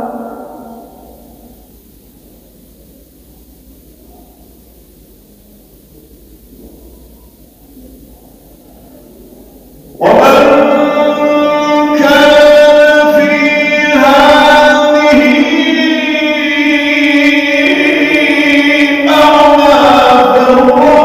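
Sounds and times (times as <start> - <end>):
man reciting melodic chant: 0.0 - 1.4, 9.9 - 21.0.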